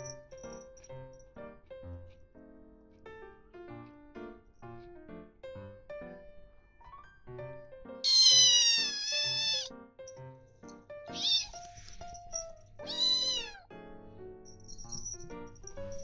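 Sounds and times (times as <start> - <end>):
soft piano music: 0.0 - 16.0
kitten meowing loudly: 8.0 - 9.7, 11.1 - 11.6, 12.9 - 13.6.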